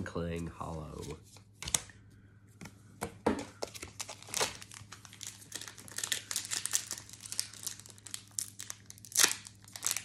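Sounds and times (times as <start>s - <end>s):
foil wrapper crinkling and tearing: 3.6s - 10.0s.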